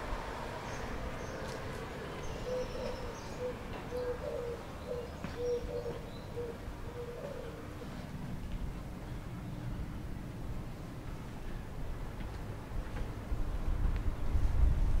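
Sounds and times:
steady outdoor hiss: 0:00.0 - 0:15.0
dove cooing: 0:02.3 - 0:08.0.

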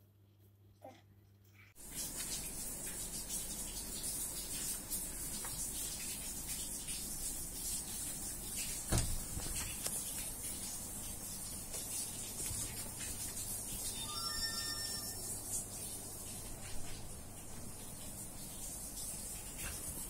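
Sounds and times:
dull thump: 0:08.9 - 0:09.6.

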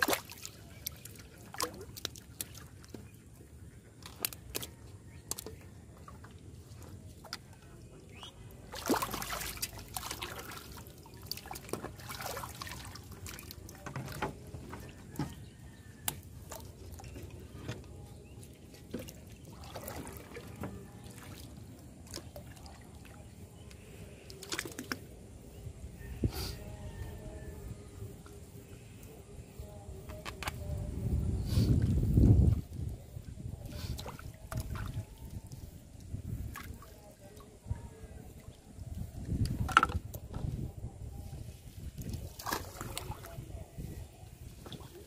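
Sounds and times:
water splashing and dripping: 0:00.0 - 0:03.4, 0:04.0 - 0:15.3, 0:16.0 - 0:25.1, 0:33.6 - 0:37.6, 0:41.8 - 0:43.4.

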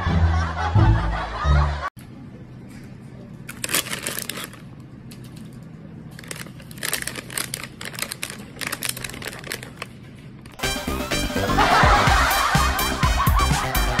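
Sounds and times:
plastic packets crinkling: 0:03.5 - 0:04.7, 0:06.1 - 0:10.6.

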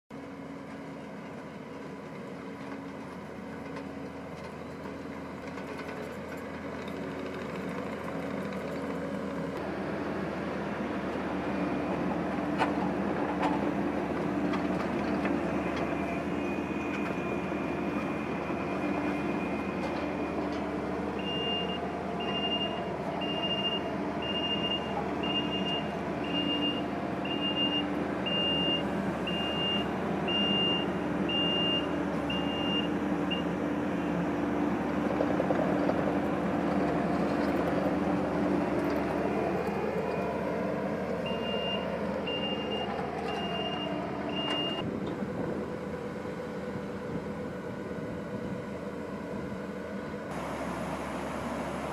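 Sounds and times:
track loader engine running: 0:00.1 - 0:51.9
backup alarm beeping: 0:21.2 - 0:33.5, 0:41.2 - 0:44.8.

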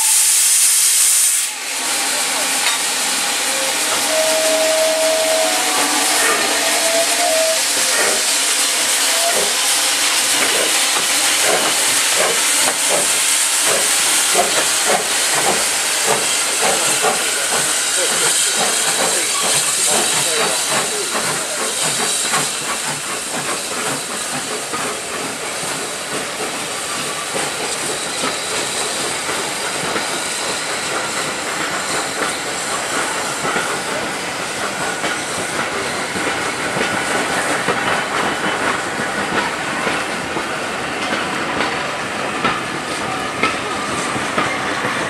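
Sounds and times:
steam hissing: 0:00.0 - 0:45.0.

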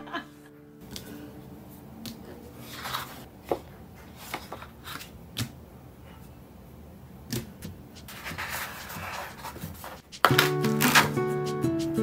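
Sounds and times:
paper rustling: 0:02.4 - 0:05.2, 0:08.0 - 0:11.2.

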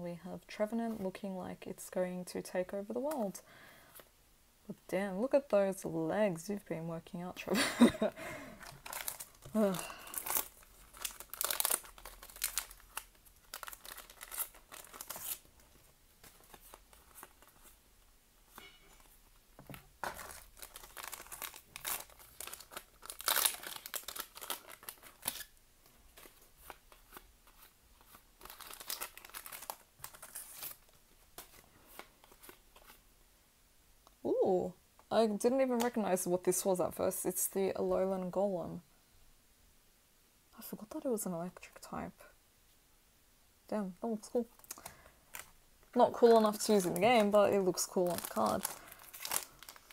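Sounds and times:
foil wrapper tearing and crinkling: 0:08.6 - 0:17.8, 0:20.0 - 0:25.6, 0:26.2 - 0:31.0, 0:46.2 - 0:49.9.

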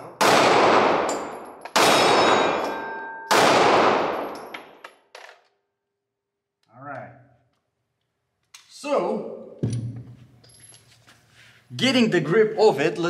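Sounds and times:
pistol shots echoing: 0:00.0 - 0:04.8.

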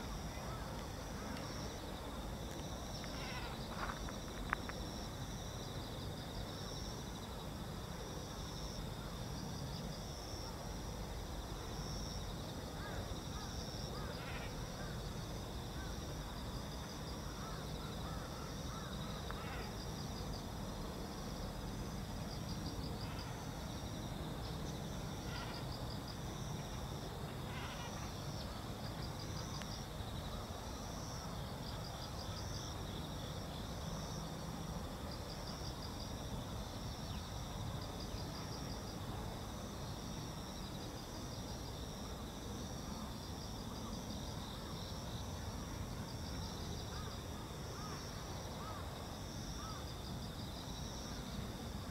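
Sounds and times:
insects droning: 0:00.0 - 0:51.9
pulsed insect chirp: 0:21.2 - 0:34.3.

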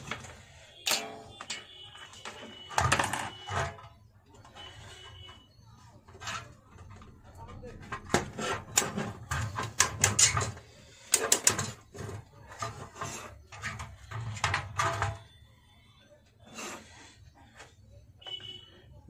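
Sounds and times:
metal parts clicking and clattering: 0:00.0 - 0:03.9, 0:07.8 - 0:15.3.

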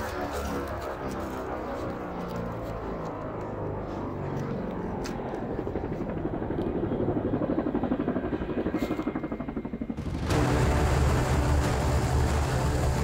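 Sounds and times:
helicopter rotor chopping: 0:00.0 - 0:13.0.

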